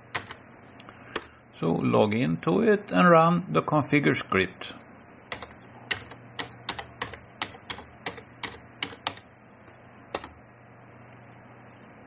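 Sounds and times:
keyboard keys clicking: 0.1 - 0.4, 5.3 - 9.2, 10.1 - 10.4.

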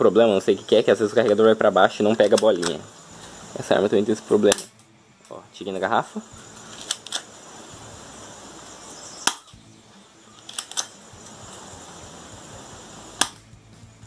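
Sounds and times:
airsoft pistol clicks and snaps: 4.5 - 4.9, 6.7 - 7.3, 9.2 - 9.6, 10.4 - 11.0, 13.2 - 13.5.

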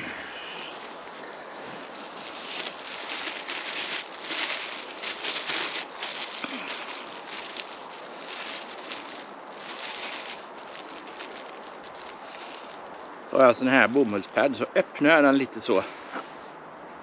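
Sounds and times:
plastic bag crinkling: 0.6 - 13.2.

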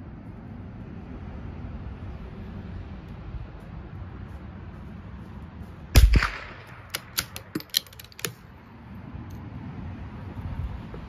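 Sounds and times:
rifle shot crack: 5.9 - 7.4
rifle bolt clicking: 6.1 - 8.4.

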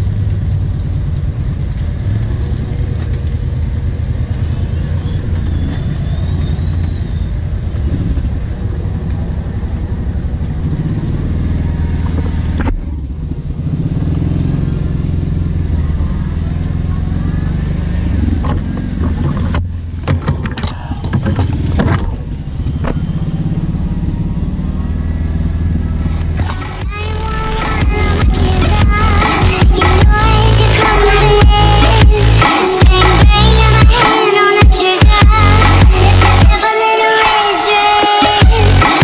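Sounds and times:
quad engine under throttle: 0.0 - 36.7, 37.7 - 39.0.

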